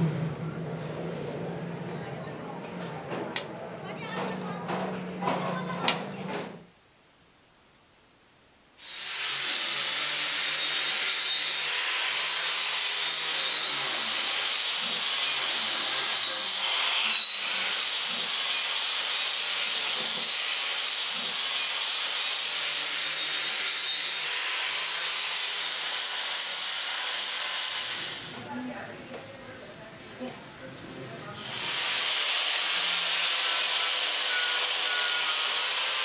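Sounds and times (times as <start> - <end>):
angle grinder grinding steel: 8.8 - 28.4, 31.4 - 36.0.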